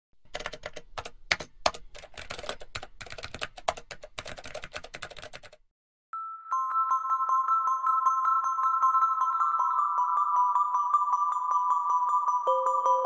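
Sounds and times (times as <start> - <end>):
keyboard typing: 0.2 - 5.6.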